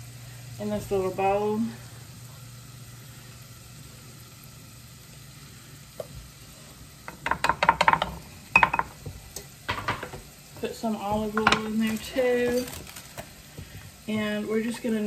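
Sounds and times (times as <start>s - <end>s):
wooden spatula knocking on cutting boards: 7.1s - 12.6s.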